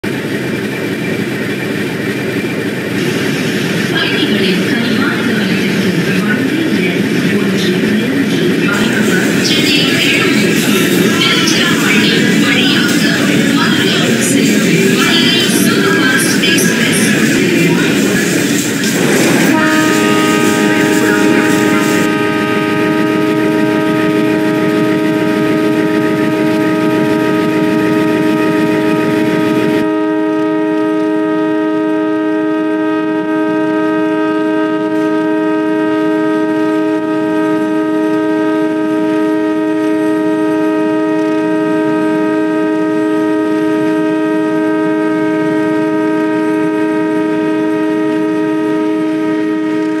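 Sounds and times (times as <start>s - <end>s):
locomotive air horn blast: 2.9s - 50.0s
rushing hiss: 17.9s - 22.0s.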